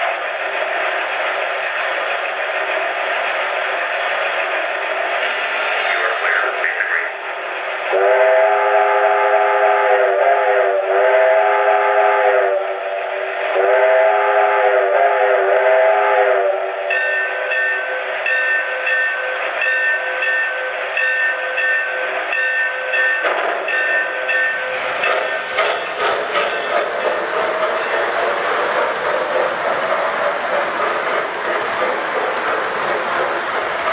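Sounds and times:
steam whistle blasts: 0:07.9 - 0:12.8, 0:13.5 - 0:16.9
locomotive bell ringing: 0:16.9 - 0:28.5
steam hiss: 0:23.4 - 0:33.9.

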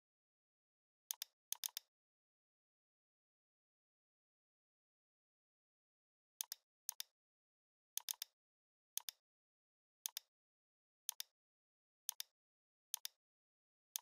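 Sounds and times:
computer mouse clicks: 0:01.1 - 0:01.9, 0:06.4 - 0:07.1, 0:08.0 - 0:08.4, 0:09.0 - 0:09.2, 0:10.0 - 0:10.3, 0:11.1 - 0:11.3, 0:12.1 - 0:12.3, 0:13.0 - 0:13.2.

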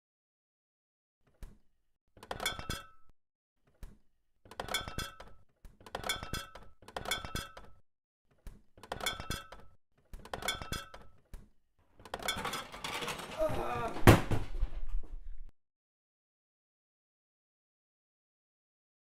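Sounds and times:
glass containers clinking: 0:02.2 - 0:03.1, 0:04.5 - 0:07.8, 0:08.8 - 0:11.2, 0:12.1 - 0:13.5.

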